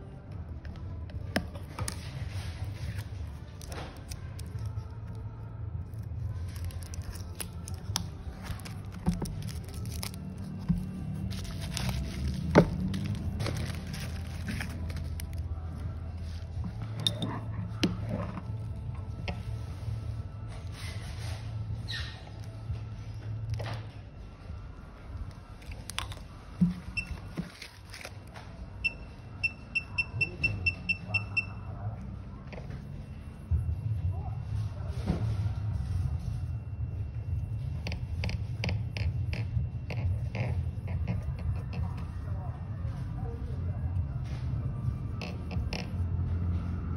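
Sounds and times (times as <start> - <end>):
packaging rustling and crinkling: 5.9 - 15.7, 25.6 - 28.4.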